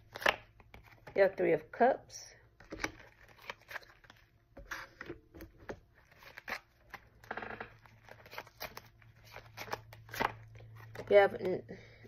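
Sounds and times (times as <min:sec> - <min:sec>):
cards being shuffled: 0:00.0 - 0:01.2, 0:06.0 - 0:11.5.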